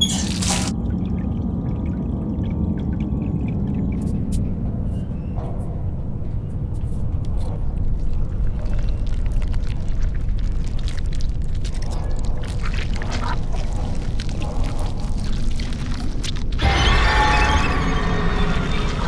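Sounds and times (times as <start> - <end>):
deep steady rumble: 0.7 - 10.5.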